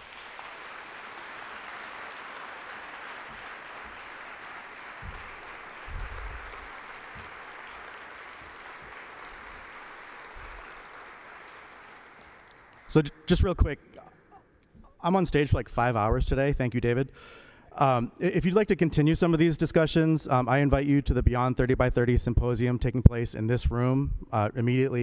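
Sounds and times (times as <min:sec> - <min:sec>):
audience applauding: 0:00.0 - 0:13.5
low thumps: 0:05.0 - 0:07.4.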